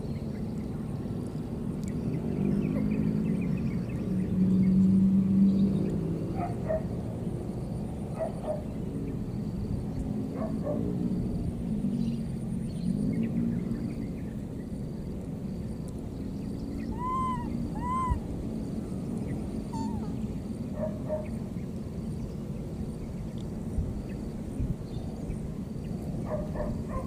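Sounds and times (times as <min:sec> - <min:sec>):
faint chirps: 0:16.4 - 0:18.3, 0:19.2 - 0:20.4
baby monkey calls: 0:16.8 - 0:18.4, 0:19.6 - 0:20.3.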